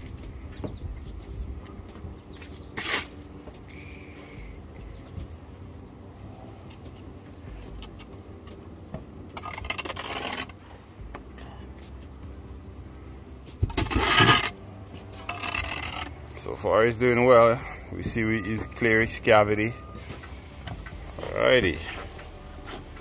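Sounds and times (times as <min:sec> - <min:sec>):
trowel scraping mortar: 0:09.4 - 0:10.6, 0:13.7 - 0:16.2.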